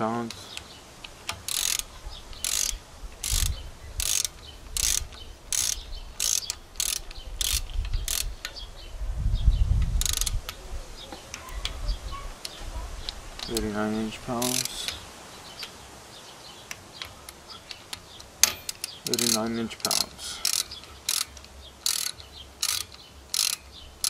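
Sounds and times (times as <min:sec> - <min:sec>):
torque wrench ratchet clicking: 0:01.3 - 0:08.4, 0:10.0 - 0:10.5, 0:14.4 - 0:15.0, 0:17.8 - 0:23.7.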